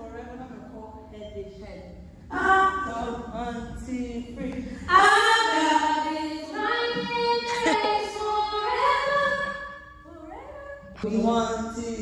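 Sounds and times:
women singing in harmony: 2.3 - 10.9.

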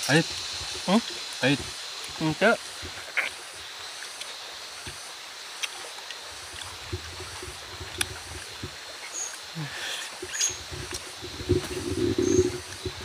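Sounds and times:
outdoor background hiss: 0.0 - 13.0
soft low rumble: 10.2 - 13.0.

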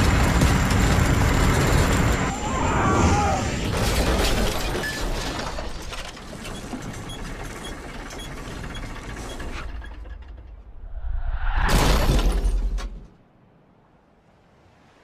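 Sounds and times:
old car rattling and clattering: 3.8 - 10.6.

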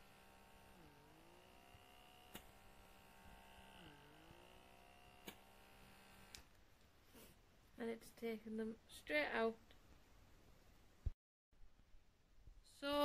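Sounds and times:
small suction motor whine: 0.0 - 6.6.

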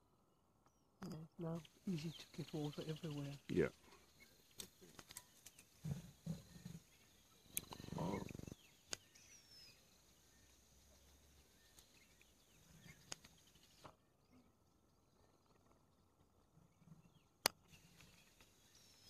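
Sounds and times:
lion buzzy pulsing growl: 5.8 - 8.6
lions grunting: 5.8 - 8.6
faint clicks: 7.5 - 9.3, 13.0 - 13.9.

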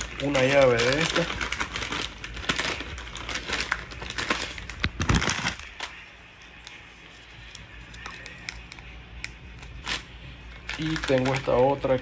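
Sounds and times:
small hard objects clattering: 0.0 - 5.7, 10.7 - 12.0.

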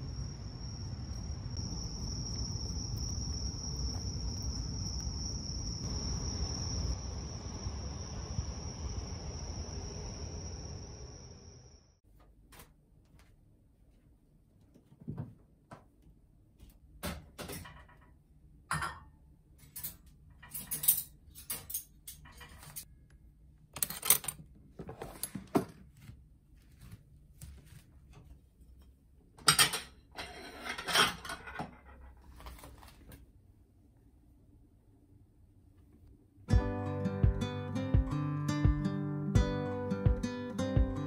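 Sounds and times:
cutlery clinking and rattling: 19.6 - 22.9, 29.4 - 32.0.

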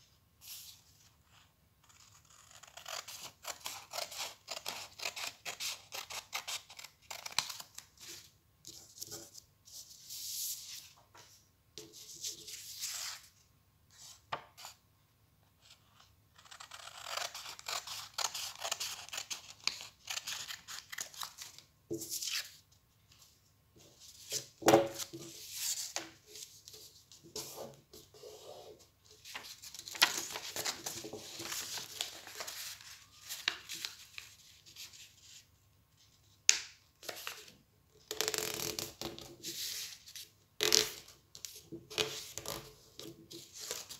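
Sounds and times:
paper rustling and rubbing: 29.2 - 35.4.

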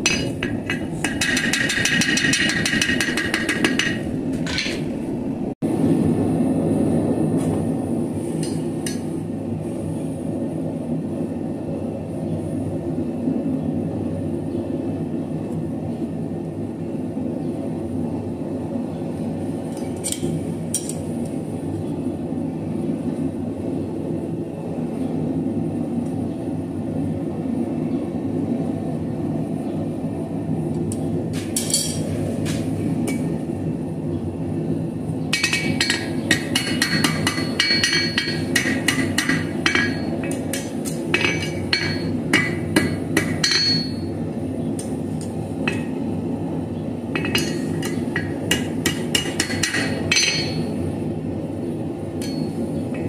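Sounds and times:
steady low hum: 0.0 - 53.0
hammer clinking on steel: 35.4 - 44.1.

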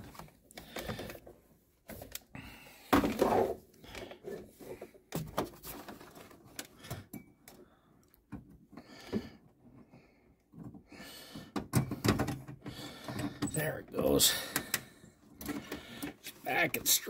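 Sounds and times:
knocks and clicks of plastic parts: 10.5 - 13.6.

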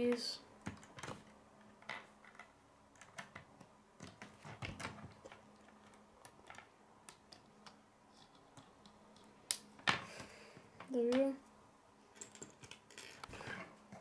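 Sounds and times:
plastic pieces clicking together: 12.2 - 13.3.

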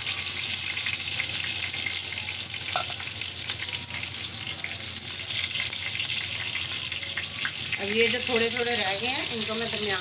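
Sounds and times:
meat sizzling in oil: 0.0 - 10.0.

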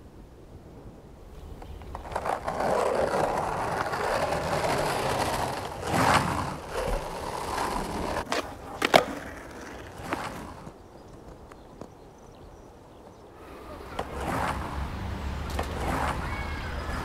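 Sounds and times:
skateboard wheels rolling on asphalt: 0.2 - 17.0.

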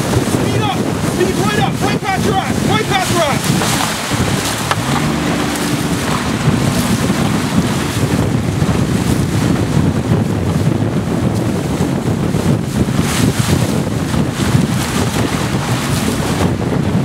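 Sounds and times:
paddles splashing water: 0.0 - 10.1
wind buffeting microphone: 0.0 - 17.0.

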